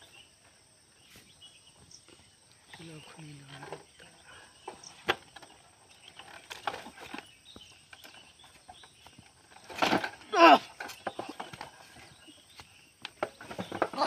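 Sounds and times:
person crying out: 10.3 - 10.6.

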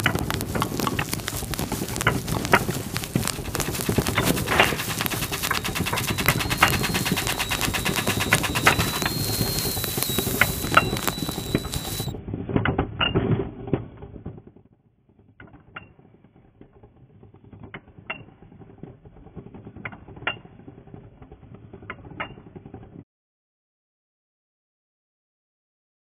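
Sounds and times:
pencil sharpener scraping: 0.0 - 12.1
high steady whine: 0.0 - 12.2.

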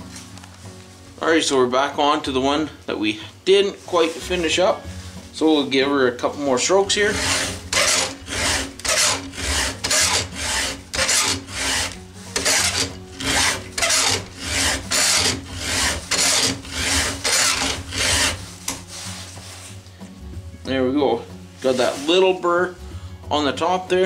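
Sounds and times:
file rasping on chainsaw chain: 6.9 - 18.4.

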